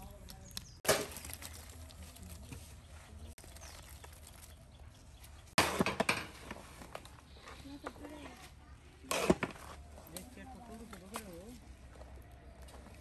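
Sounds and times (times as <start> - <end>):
onions dropping onto meat: 0.8 - 2.6
onions rustling: 0.8 - 5.6.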